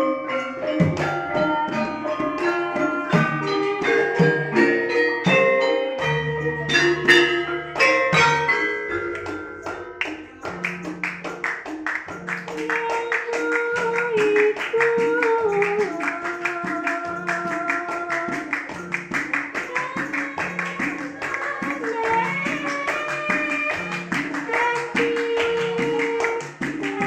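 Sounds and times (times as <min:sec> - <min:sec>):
metallophone notes ringing: 0:00.0 - 0:27.0
hand claps: 0:00.8 - 0:27.0
girl singing: 0:12.6 - 0:18.6, 0:19.5 - 0:27.0.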